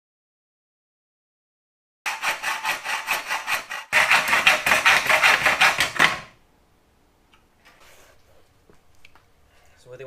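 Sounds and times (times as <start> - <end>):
hacksaw cutting metal: 2.1 - 6.3.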